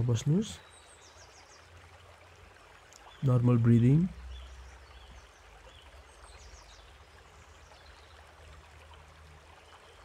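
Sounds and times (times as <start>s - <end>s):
low hum and hiss: 0.0s - 10.0s
distant bird chirps: 3.0s - 8.4s.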